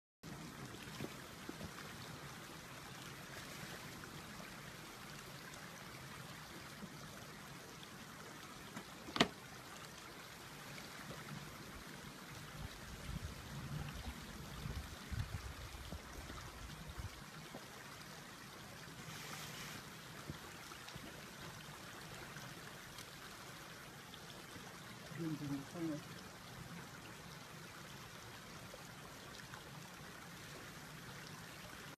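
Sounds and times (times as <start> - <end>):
creek flowing over rocks: 0.2 - 31.9.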